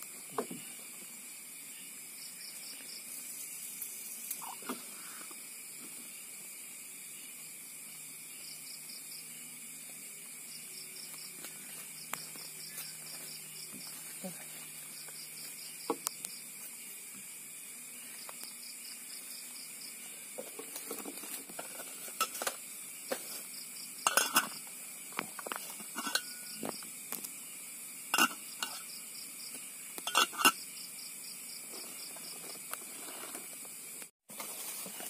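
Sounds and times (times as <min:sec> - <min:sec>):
night insects chorus: 0:00.0 - 0:35.0
metal pot lid clinking: 0:24.0 - 0:24.6, 0:26.0 - 0:26.4, 0:28.2 - 0:28.8, 0:30.1 - 0:30.6.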